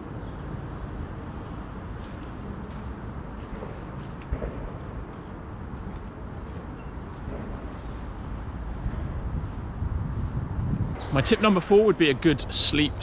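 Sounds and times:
faint bird chirps: 0:05.6 - 0:09.0.

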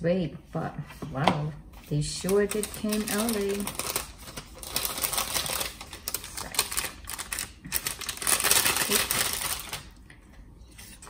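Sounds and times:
plastic packaging crinkling: 0:02.2 - 0:10.1.

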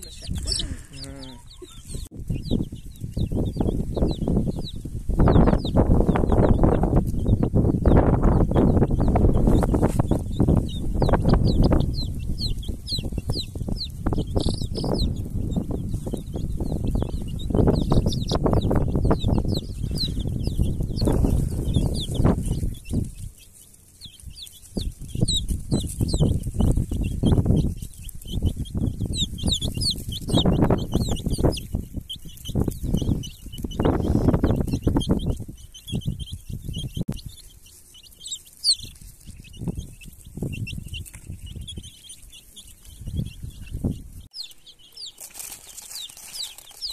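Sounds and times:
low rumbling microphone noise: 0:00.0 - 0:23.5, 0:24.1 - 0:37.5
chicks peeping: 0:00.0 - 0:46.9.

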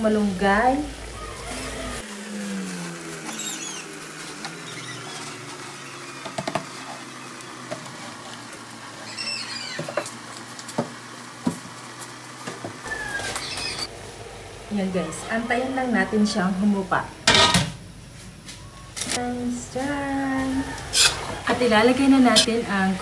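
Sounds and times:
wok hissing: 0:00.0 - 0:18.7, 0:19.3 - 0:23.0
leaves rustling and pattering: 0:01.5 - 0:13.9.

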